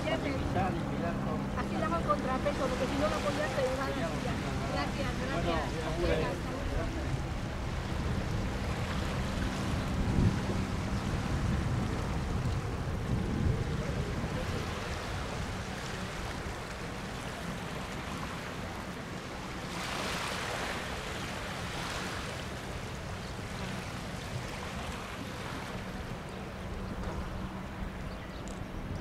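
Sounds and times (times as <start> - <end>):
helicopter hum: 0.0 - 17.7
water noise: 0.0 - 29.0
wind: 0.0 - 29.0.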